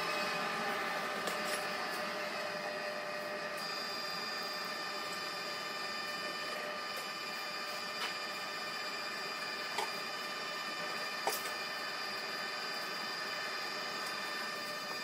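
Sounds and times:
air blower whine: 0.0 - 15.0.

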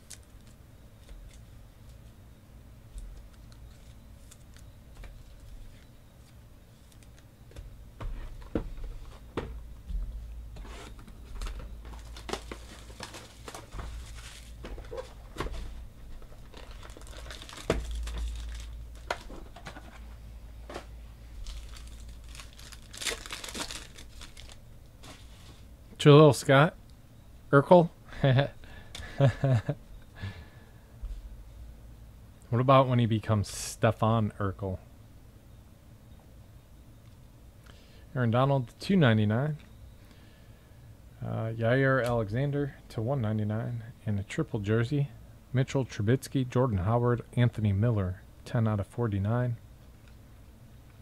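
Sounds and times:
foil wrappers crinkling: 0.0 - 2.0, 3.0 - 7.2, 11.4 - 15.4, 16.1 - 20.0, 20.7 - 25.7
card handling clicks and rustling: 2.9 - 7.3, 10.9 - 25.5
foil wrappers tearing: 11.9 - 14.7, 16.3 - 19.4, 21.3 - 25.3.

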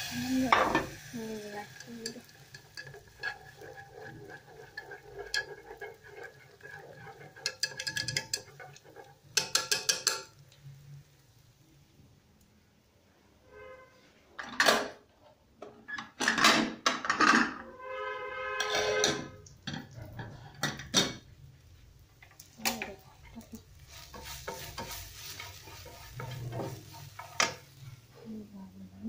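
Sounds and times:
frying pan sizzle: 0.0 - 12.7, 19.0 - 29.0
dishes and utensils clinking: 0.2 - 1.1, 1.7 - 10.4, 15.9 - 17.7, 18.5 - 21.3, 22.2 - 28.1.

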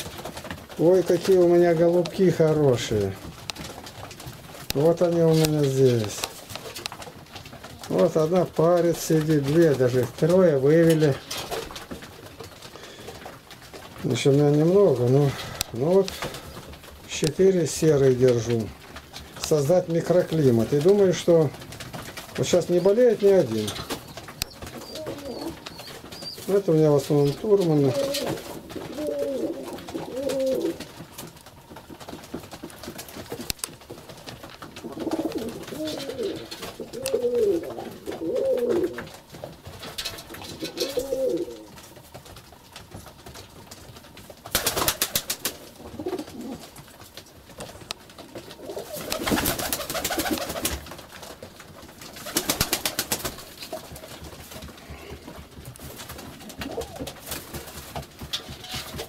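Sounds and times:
wing flapping: 0.0 - 59.0
pigeons cooing: 22.4 - 31.2, 34.8 - 39.3, 40.3 - 41.9, 44.6 - 46.8, 48.2 - 50.8, 56.4 - 57.2.

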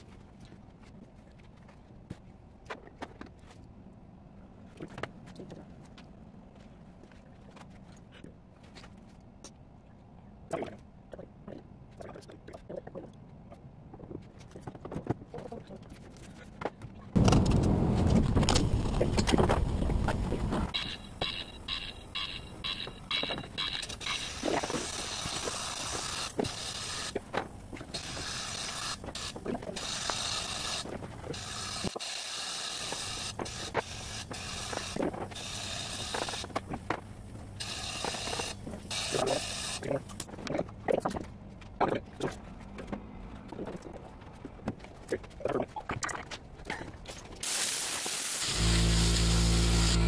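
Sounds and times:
compressed air hiss: 23.6 - 36.8, 37.6 - 40.2, 47.4 - 50.0.

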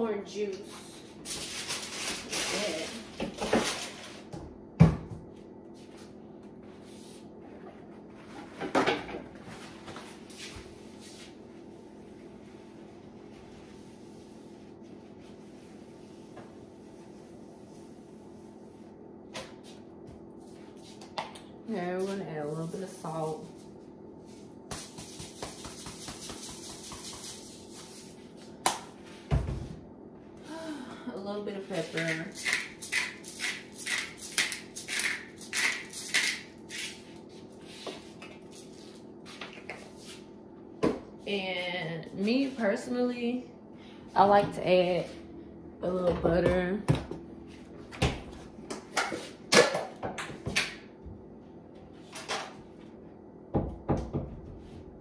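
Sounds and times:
low kitchen hum: 0.0 - 55.0
pepper shaker shaking: 31.8 - 37.0.

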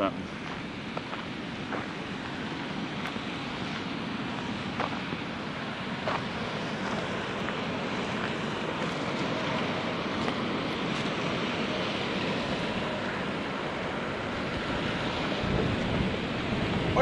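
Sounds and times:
river water pouring over dam: 0.0 - 17.0.

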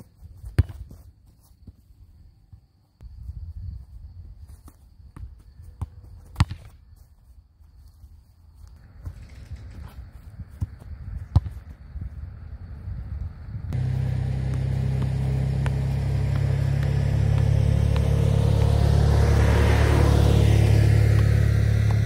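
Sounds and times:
soccer ball kick thud: 0.0 - 1.8, 4.6 - 6.8, 9.8 - 11.9, 13.7 - 19.1, 21.1 - 22.0.

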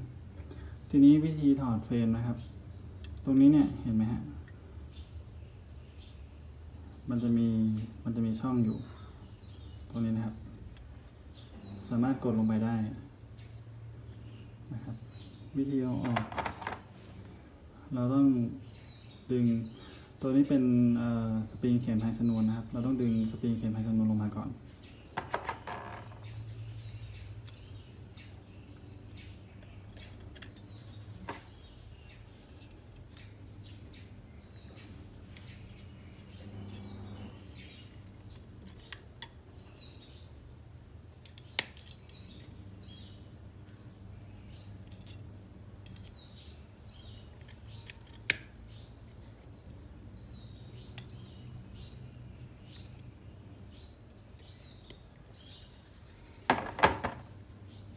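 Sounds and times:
small birds chirping: 0.0 - 57.9
metal pistol parts clicking: 29.6 - 30.8, 32.3 - 33.4, 41.2 - 42.6, 44.6 - 49.6.

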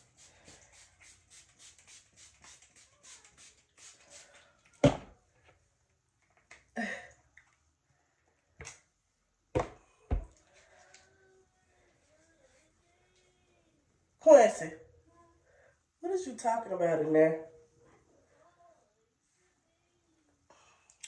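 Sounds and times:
spray bottle squirting water: 0.0 - 4.8.

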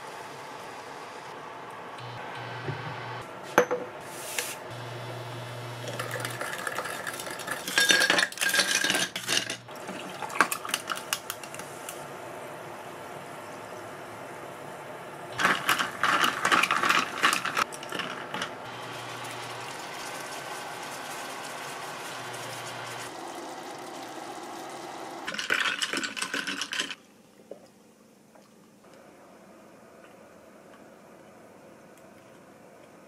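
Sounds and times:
ice cubes clinking in glass: 5.9 - 11.0, 25.3 - 27.0.

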